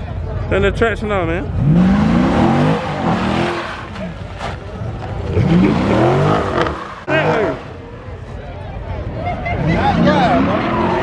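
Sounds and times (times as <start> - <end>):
car engine revving: 1.4 - 8.3.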